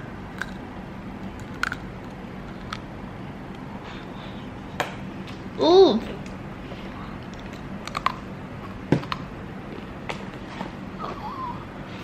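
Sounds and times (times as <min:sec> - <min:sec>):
low steady hum: 0:00.0 - 0:12.0
chewing mouth clicks and smacks: 0:07.3 - 0:08.2.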